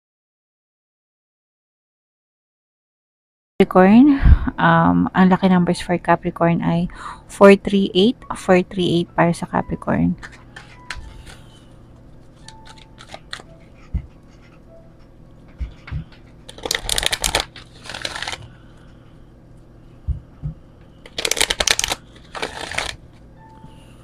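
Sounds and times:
cards riffling: 12.3s - 13.6s, 16.5s - 18.5s, 21.0s - 23.1s.

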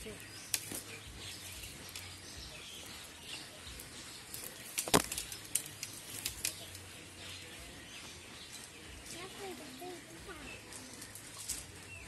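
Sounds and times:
net sinkers clinking: 3.8s - 6.8s.

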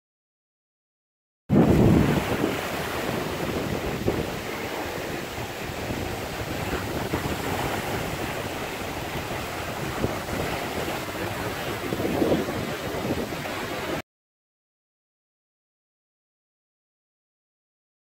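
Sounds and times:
waves breaking on rocky shore: 1.5s - 14.0s
wind rumbling on microphone: 1.5s - 14.0s.

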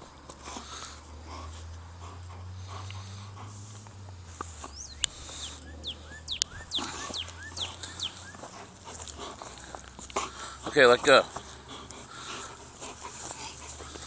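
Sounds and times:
songbird whistling: 4.6s - 8.5s.

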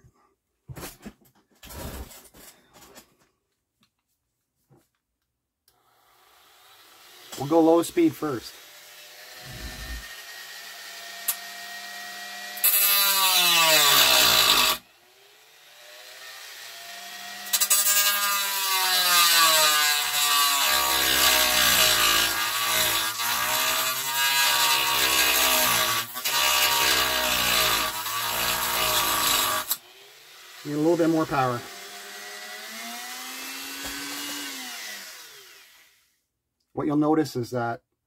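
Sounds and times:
rotary tool cutting plastic: 9.3s - 10.2s, 11.0s - 11.6s, 12.5s - 14.8s, 17.2s - 29.9s.

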